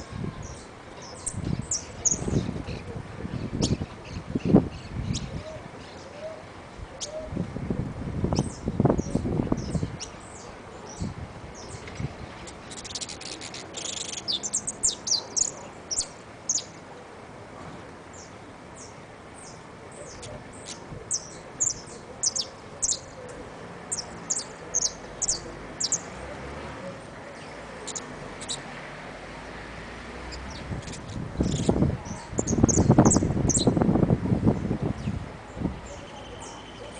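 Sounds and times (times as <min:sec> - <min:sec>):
bird buzzy chatter: 0:11.8 - 0:16.1.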